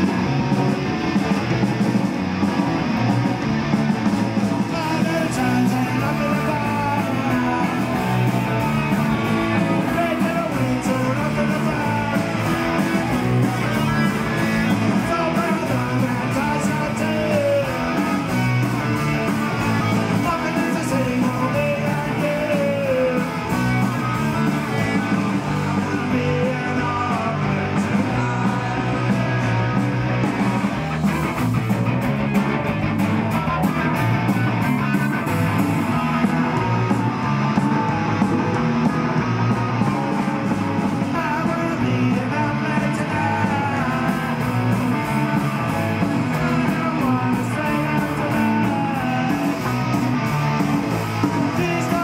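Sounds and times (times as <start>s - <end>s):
distorted electric guitars: 0.0s - 52.0s
drum kit: 0.0s - 52.0s
person singing: 4.6s - 30.0s, 33.2s - 52.0s.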